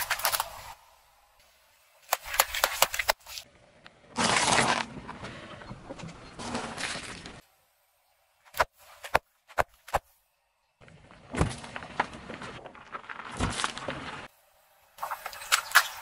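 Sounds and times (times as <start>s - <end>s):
tyre noise on road: 0.0s - 16.0s
tyre flattening drink carton: 4.2s - 5.1s.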